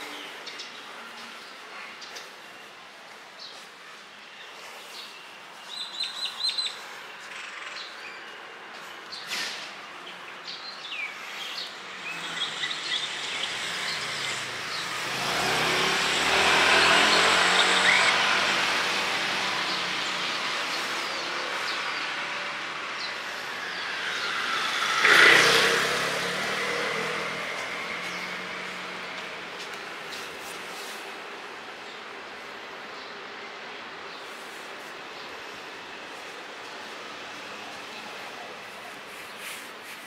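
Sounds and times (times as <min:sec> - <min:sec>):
birds chirping: 0:03.4 - 0:35.6
motor vehicle passing: 0:11.2 - 0:31.8.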